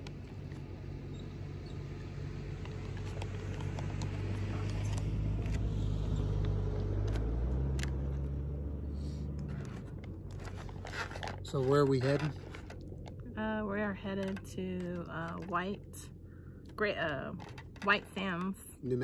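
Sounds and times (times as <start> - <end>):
car engine passing: 0.5 - 12.6.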